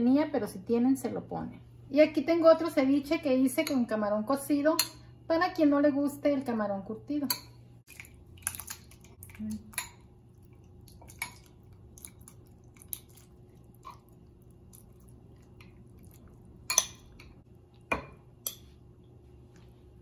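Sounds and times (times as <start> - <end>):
soft wet plops: 7.9 - 17.9
spoon clinking on glass bowl: 16.6 - 17.3.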